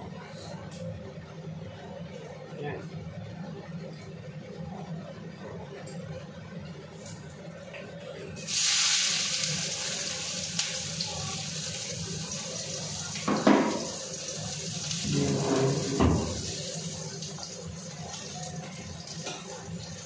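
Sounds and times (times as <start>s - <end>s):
onions sizzling in hot oil: 8.4s - 20.0s.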